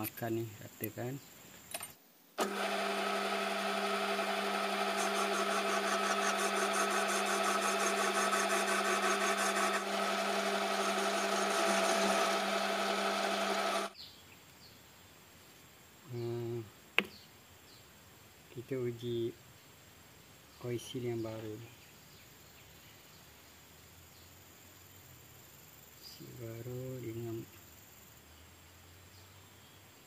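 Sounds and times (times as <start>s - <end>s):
electric power tool whining: 2.4s - 14.0s.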